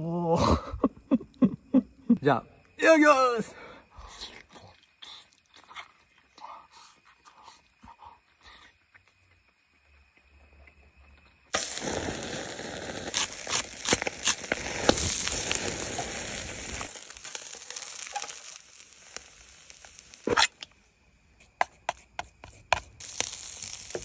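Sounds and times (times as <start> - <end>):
food sizzling on a grill: 11.5 - 20.5, 22.7 - 24.0.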